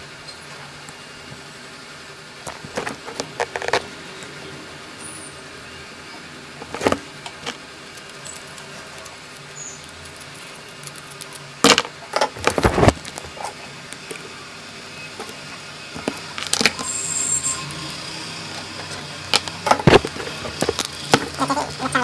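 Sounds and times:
scattered clicks: 7.9s - 11.5s.

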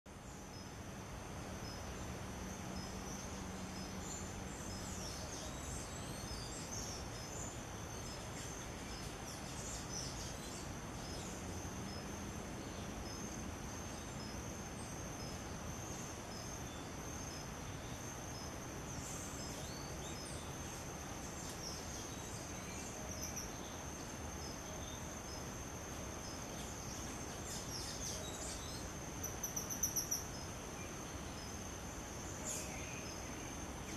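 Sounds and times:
background hiss: 0.1s - 33.9s
bird chirps: 26.3s - 30.5s.

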